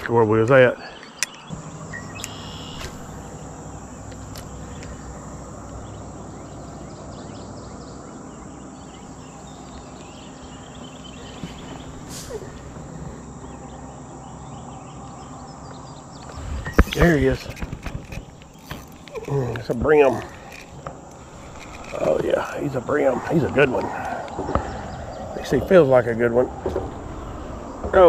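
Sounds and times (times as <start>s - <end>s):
insects droning: 0.0s - 28.0s
low hum: 0.7s - 28.0s.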